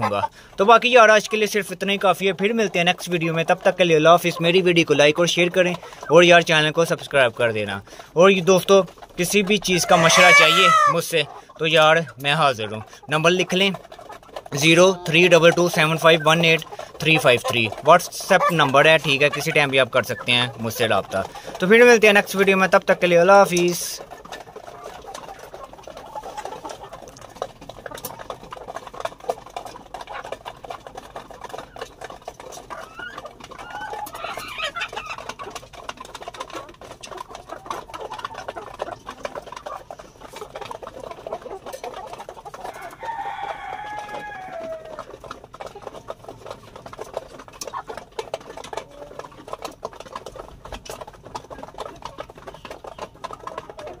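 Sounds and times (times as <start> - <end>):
hens clucking: 0.0 - 54.0
hen call falling in pitch: 9.8 - 11.0.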